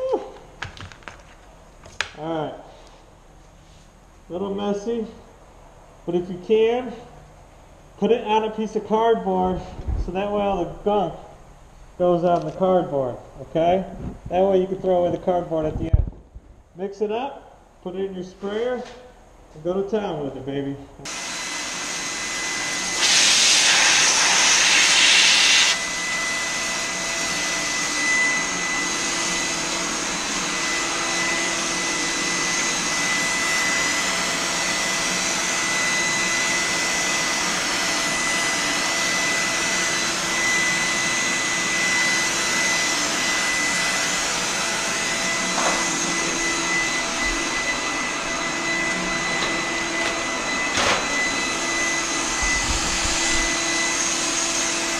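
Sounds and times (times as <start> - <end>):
compressed air hose whining: 21.1 - 54.9
paint spray gun hissing: 23.0 - 25.8.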